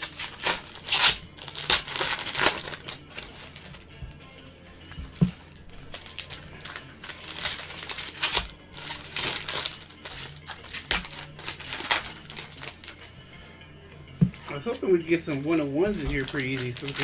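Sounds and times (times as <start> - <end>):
plastic wrappers crinkling: 0.0 - 3.9, 5.1 - 13.1, 14.5 - 17.0.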